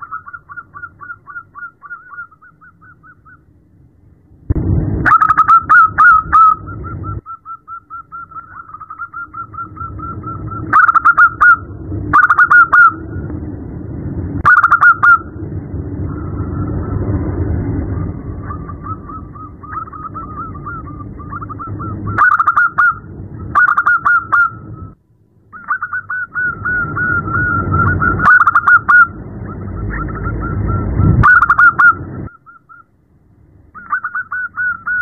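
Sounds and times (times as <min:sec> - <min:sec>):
dove cooing rapidly: 0:00.0 - 0:03.4, 0:05.1 - 0:13.0, 0:14.4 - 0:15.3, 0:18.3 - 0:24.7, 0:25.5 - 0:32.8, 0:33.8 - 0:35.0
low background rumble: 0:00.0 - 0:35.0.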